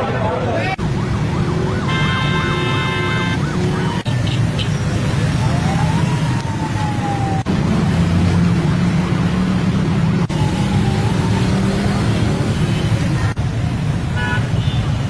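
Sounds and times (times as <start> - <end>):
street noise rumble: 0.0 - 15.0
faint siren wailing: 0.6 - 4.1, 4.9 - 8.2, 10.1 - 12.8.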